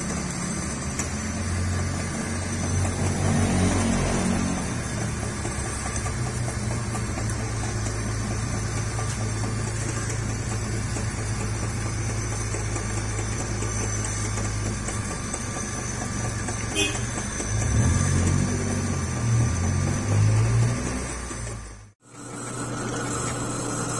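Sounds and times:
metal lathe humming: 0.0s - 23.9s.

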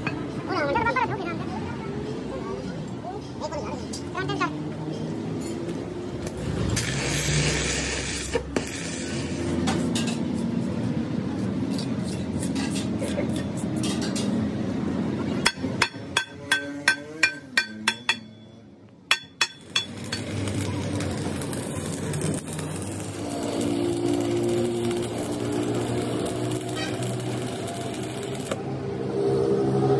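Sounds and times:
steady background noise: 0.0s - 29.9s
electric arc welder sizzling: 6.2s - 9.6s, 19.6s - 28.7s
hammer ringing on steel beam: 15.5s - 18.5s.

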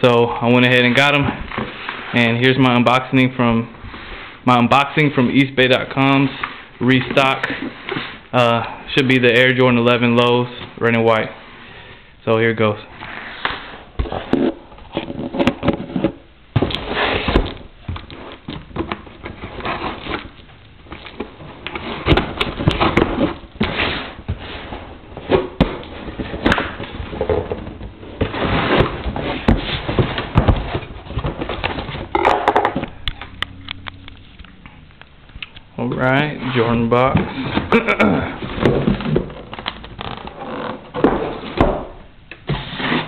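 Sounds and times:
cardboard scraping and rustling: 12.9s - 32.2s, 42.4s - 43.0s.

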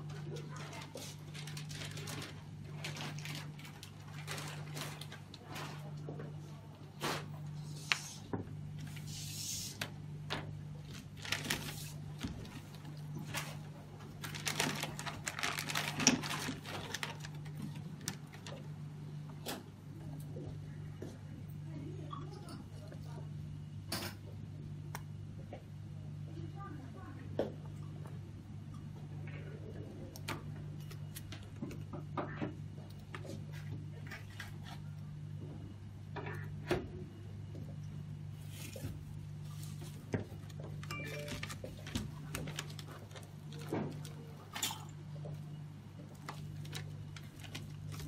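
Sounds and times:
steady low hum: 0.0s - 48.0s
plastic crinkling and clicking: 0.3s - 5.5s, 10.3s - 18.7s, 39.9s - 44.9s, 46.1s - 48.0s.

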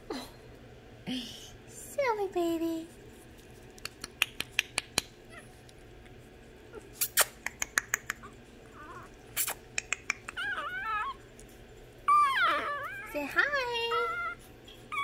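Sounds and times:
puppies whimpering: 10.1s - 11.3s, 12.0s - 15.0s.

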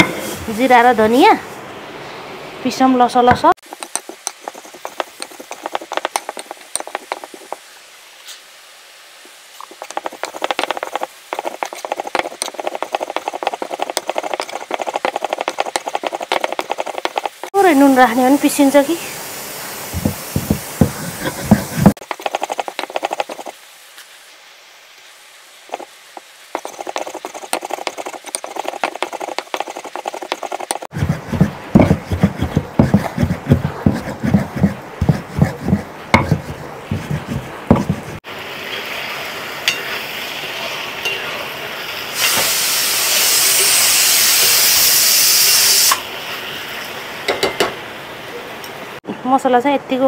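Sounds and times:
stone grinding spices: 3.6s - 7.6s, 9.6s - 17.5s, 19.9s - 23.6s, 25.7s - 38.2s
loud steady hiss: 3.6s - 28.0s, 38.2s - 48.2s.

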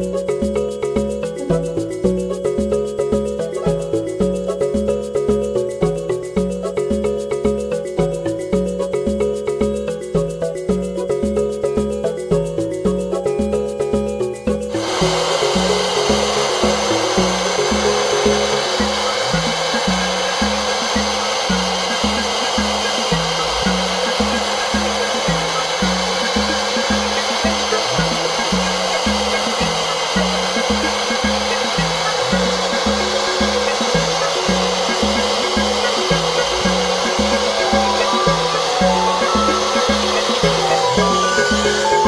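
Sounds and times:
background music with beat: 0.0s - 42.0s
hair dryer blowing: 14.7s - 42.0s.

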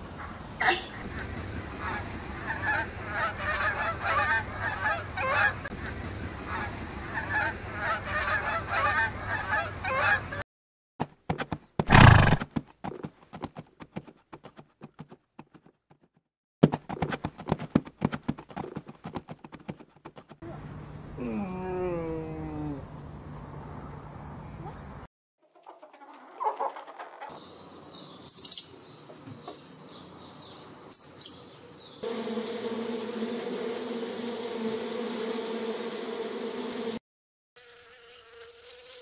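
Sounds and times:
geese honking: 1.8s - 5.7s, 6.5s - 10.4s
hoofbeats of galloping horses: 11.0s - 20.4s
horse neighing: 11.9s - 12.4s.

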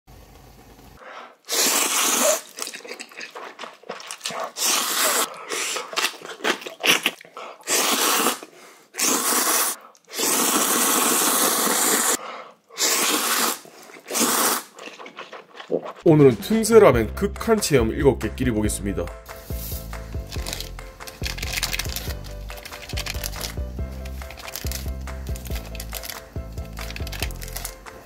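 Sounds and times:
person slurping noodles: 1.3s - 16.1s
chewing and eating: 1.7s - 16.1s, 20.2s - 28.0s.

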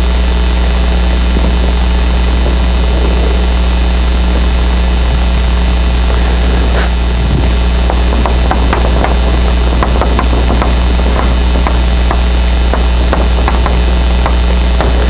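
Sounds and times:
low electrical hum: 0.0s - 15.0s
eraser wiping blackboard: 6.0s - 15.0s
chalk tapping and scratching: 7.9s - 15.0s.

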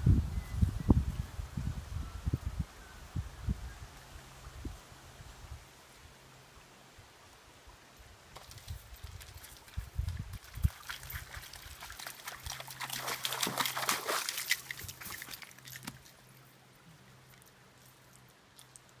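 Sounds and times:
clicks of wet stones: 8.3s - 16.4s, 17.2s - 19.0s
footsteps splashing through creek: 8.3s - 19.0s.

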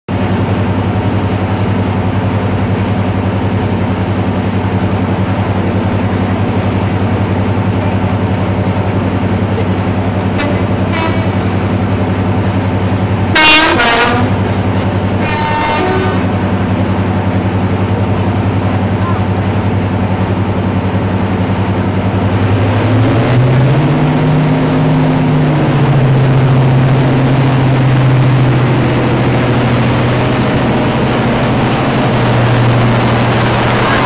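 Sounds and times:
diesel locomotive engines idling: 0.1s - 34.0s
locomotive horn: 10.3s - 11.8s, 13.1s - 16.6s, 31.4s - 34.0s.

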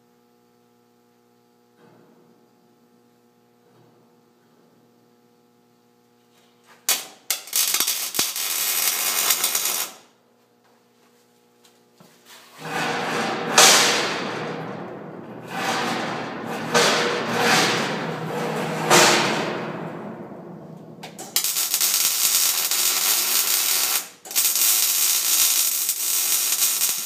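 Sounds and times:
welder arc crackling: 6.9s - 10.1s, 21.0s - 27.0s.

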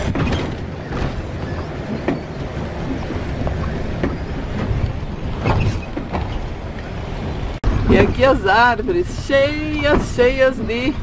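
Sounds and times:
knocks and rattles: 0.0s - 6.9s
engine and road rumble: 0.0s - 11.0s.

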